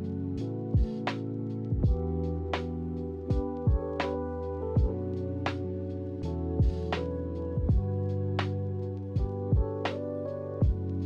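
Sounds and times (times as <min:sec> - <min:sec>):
background music with held chords: 0:00.0 - 0:11.0
kick drum thumps: 0:01.7 - 0:02.1, 0:03.3 - 0:03.9, 0:07.6 - 0:07.9, 0:09.2 - 0:09.8.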